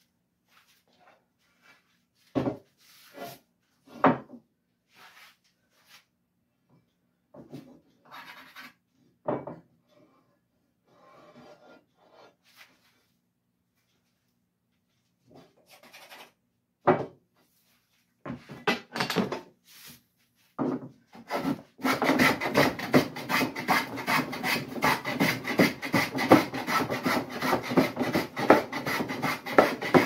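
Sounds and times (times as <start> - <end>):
tools knocking on wooden workbench: 2.4 - 2.6, 4.0 - 4.4, 9.2 - 9.7, 16.8 - 17.2, 18.3 - 19.5, 20.6 - 20.9
hand plane rasping on wood: 21.2 - 30.0.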